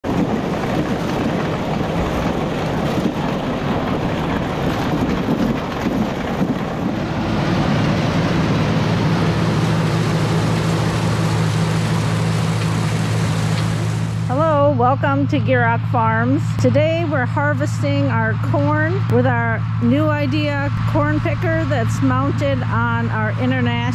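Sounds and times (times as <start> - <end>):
dense rushing noise: 0.0 - 14.5
tractor engine droning: 0.0 - 23.9.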